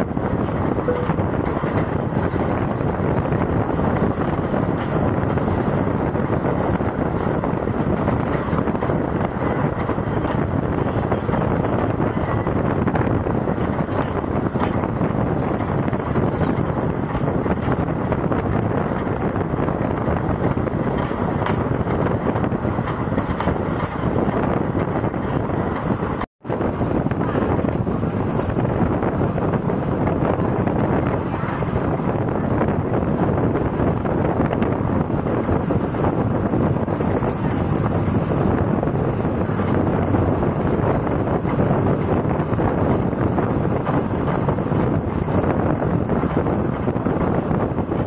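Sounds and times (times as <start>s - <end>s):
train wheel and rail noise: 0.0s - 48.0s
wind buffeting microphone: 0.0s - 48.0s.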